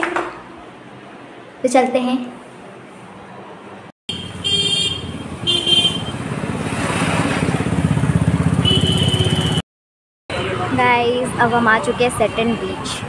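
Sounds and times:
vehicle horn beeps: 0:04.1 - 0:06.2, 0:08.6 - 0:09.6
motorcycle passing: 0:04.1 - 0:09.6.

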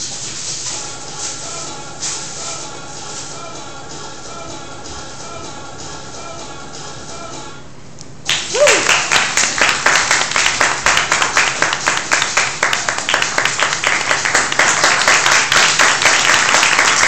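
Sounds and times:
audience applauding: 0:08.3 - 0:17.0
close sharp hand claps: 0:08.3 - 0:17.0.

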